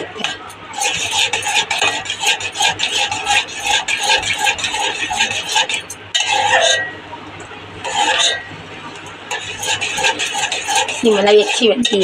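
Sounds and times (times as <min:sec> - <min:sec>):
metal spoon stirring in steel pot: 0:00.0 - 0:07.0, 0:07.8 - 0:12.0.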